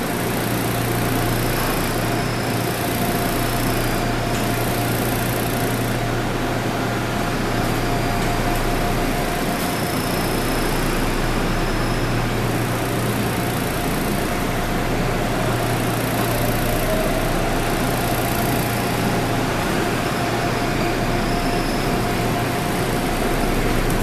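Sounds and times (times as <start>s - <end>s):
faint steady whine: 0.0s - 24.0s
train pulling away: 0.0s - 24.0s
train interior hum: 1.0s - 24.0s.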